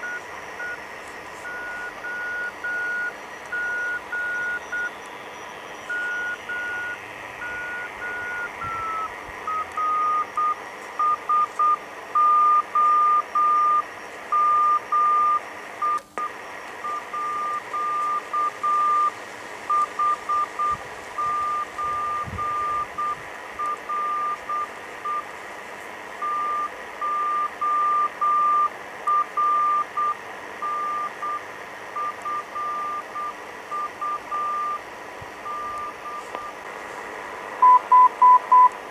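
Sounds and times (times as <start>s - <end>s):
radio receiver hiss: 0.0s - 38.9s
morse code beeping tone: 1.4s - 13.8s, 19.7s - 25.2s, 26.2s - 31.4s, 32.0s - 36.6s, 37.6s - 38.7s.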